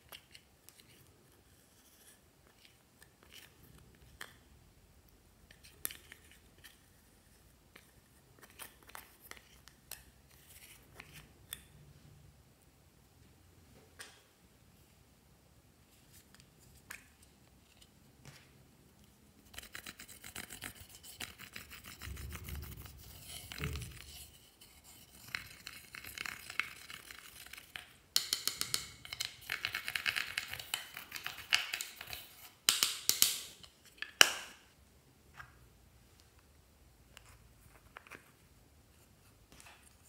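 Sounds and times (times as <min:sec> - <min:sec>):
tool scraping eyeshadow powder: 0:19.4 - 0:27.8.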